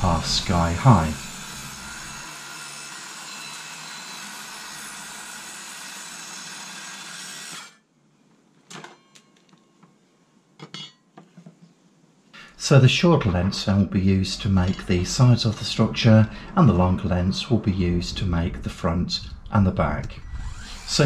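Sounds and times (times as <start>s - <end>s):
circular saw running: 0.0s - 7.8s, 13.0s - 21.0s.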